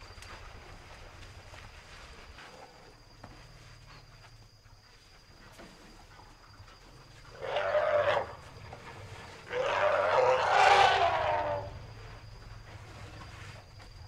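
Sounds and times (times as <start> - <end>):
elephant trumpeting: 7.3 - 8.4, 9.5 - 11.8.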